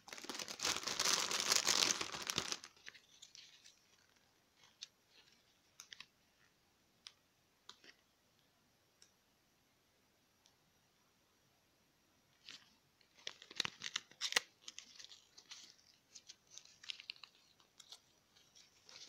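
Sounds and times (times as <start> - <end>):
plastic wrapping crinkling: 0.0 - 6.1, 12.4 - 19.0.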